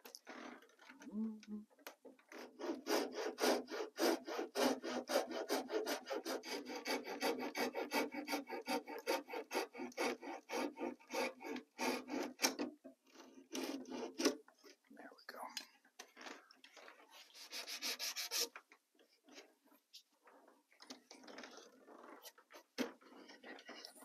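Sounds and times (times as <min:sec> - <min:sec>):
saw cutting cork: 0:02.4 - 0:12.7, 0:13.3 - 0:14.4, 0:17.4 - 0:18.5.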